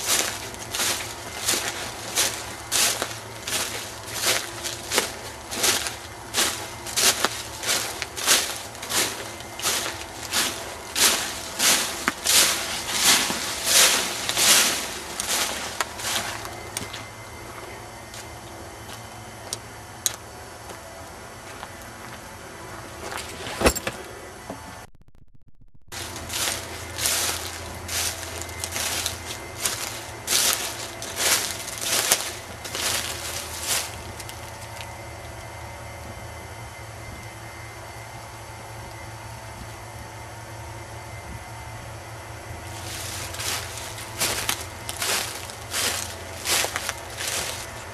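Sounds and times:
footsteps rustling: 0.0 - 18.3, 25.9 - 34.9, 42.6 - 47.9
low steady hum: 0.0 - 47.9.

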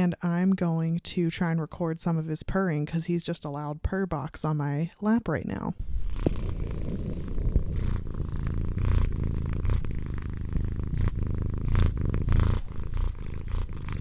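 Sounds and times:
cat purring loudly: 5.8 - 14.0.

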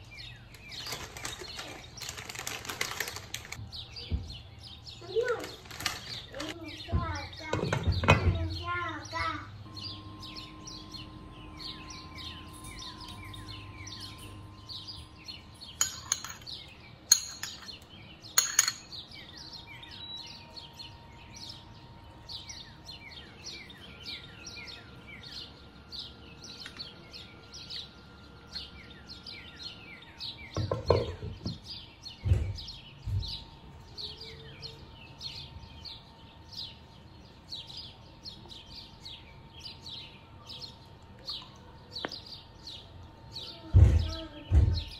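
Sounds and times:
small birds chirping: 0.0 - 44.9
kitchenware clinks: 15.8 - 17.8, 18.4 - 19.1.

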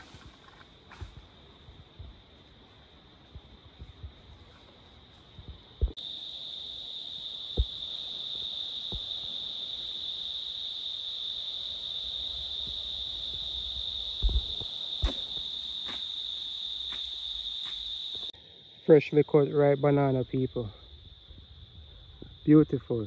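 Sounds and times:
insects trilling: 0.0 - 23.0.

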